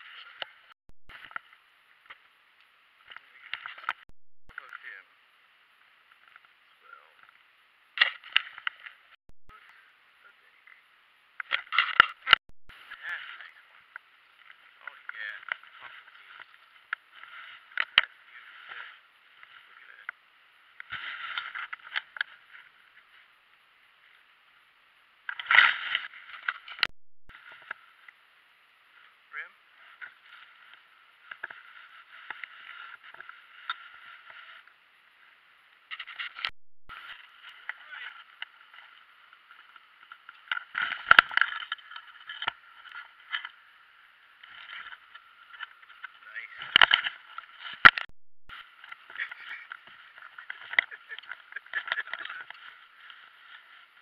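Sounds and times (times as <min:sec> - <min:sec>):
rustling and scraping handling noise: 0:11.4 - 0:20.2, 0:20.8 - 0:23.4, 0:29.8 - 0:34.8, 0:44.4 - 0:54.0.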